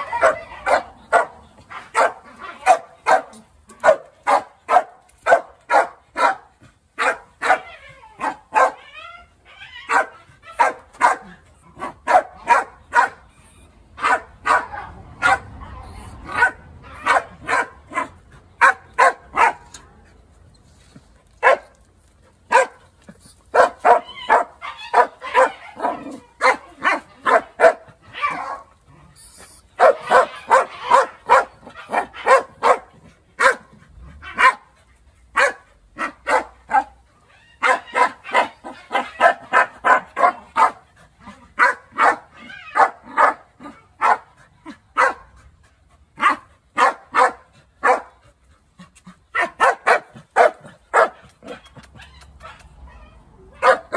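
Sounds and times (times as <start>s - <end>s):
dog barking: 0.1s - 8.8s, 9.9s - 13.2s, 14.0s - 15.5s, 16.2s - 19.7s, 21.4s - 21.7s, 22.5s - 22.8s, 23.5s - 28.7s, 29.8s - 33.7s, 34.3s - 34.7s, 35.4s - 37.0s, 37.6s - 40.8s, 41.6s - 44.3s, 45.0s - 45.3s, 46.2s - 48.2s, 49.3s - 51.6s, 53.6s - 53.9s.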